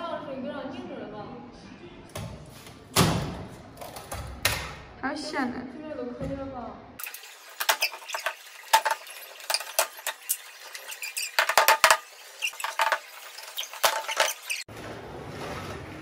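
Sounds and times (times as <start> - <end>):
plastic letters squeaking and scraping: 7.6 - 14.7.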